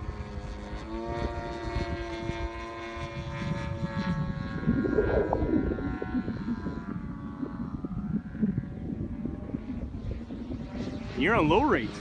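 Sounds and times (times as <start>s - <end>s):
model plane engine drone: 0.0s - 12.0s
wind on microphone: 0.0s - 12.0s.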